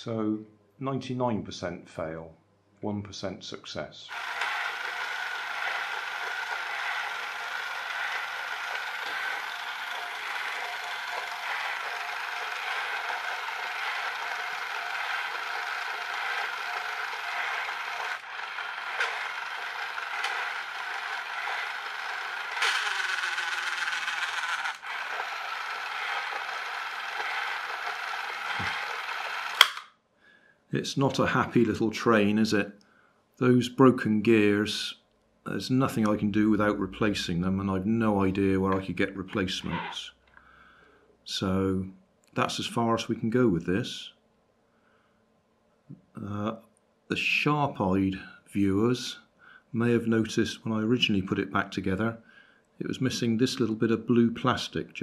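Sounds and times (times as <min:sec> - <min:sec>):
gear clicks: 0:04.1 - 0:29.9
toy train motor whirring: 0:04.1 - 0:29.9, 0:39.6 - 0:40.0.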